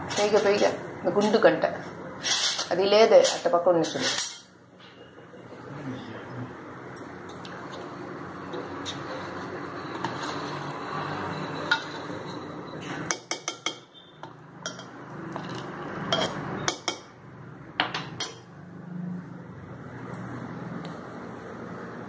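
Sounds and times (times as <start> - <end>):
ladle clinking and scraping metal pot: 2.2 - 4.5, 7.6 - 17.0.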